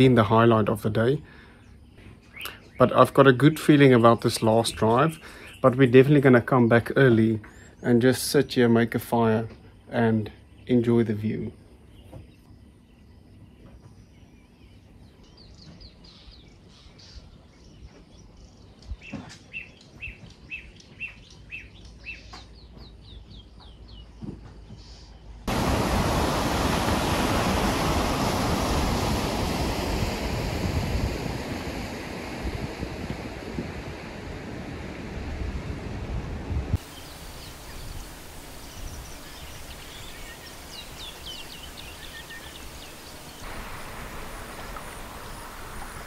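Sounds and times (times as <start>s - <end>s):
birds calling: 1.0s - 8.1s, 9.0s - 35.0s, 36.8s - 46.0s
loud steady rushing noise: 25.5s - 46.0s.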